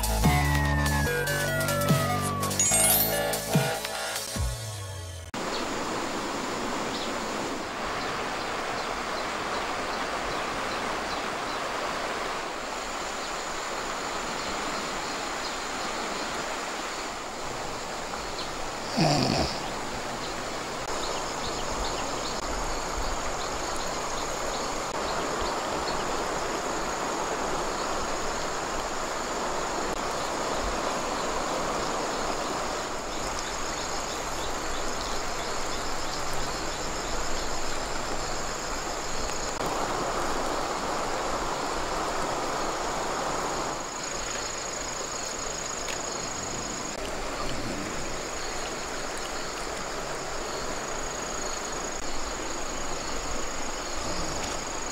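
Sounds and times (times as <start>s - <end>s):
high insect drone: 12.6s - 54.9s
shallow water trickling: 43.8s - 54.9s.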